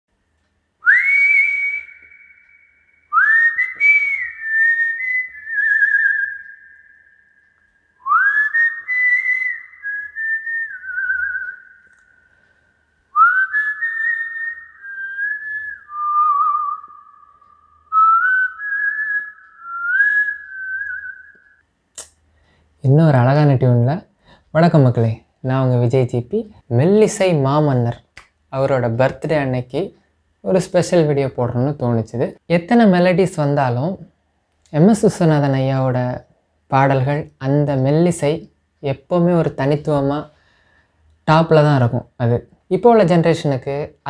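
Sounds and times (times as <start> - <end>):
man whistling a slow melody: 0.8 - 12.3, 13.1 - 21.6.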